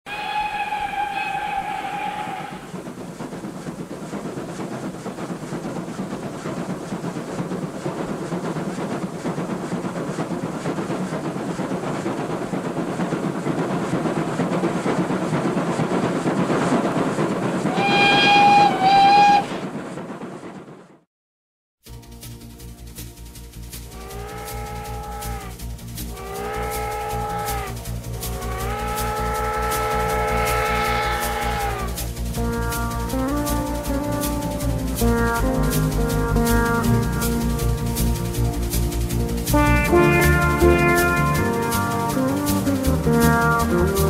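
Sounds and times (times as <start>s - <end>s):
steam locomotive whistle: 0.1s - 2.7s, 17.7s - 19.6s, 23.9s - 32.6s, 39.5s - 44.0s
train running: 0.1s - 21.0s, 21.9s - 44.0s.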